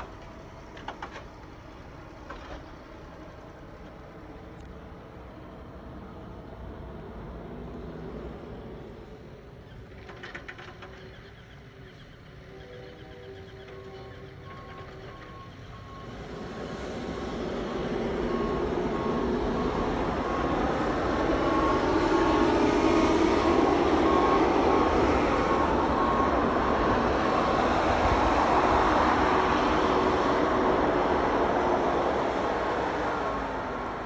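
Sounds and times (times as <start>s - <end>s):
truck engine passing: 14.0s - 34.0s.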